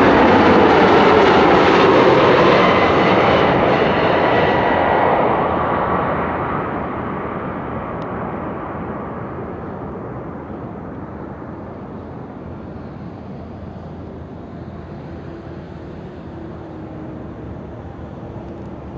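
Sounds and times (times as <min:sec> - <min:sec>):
jet engines rumbling: 0:00.0 - 0:18.9.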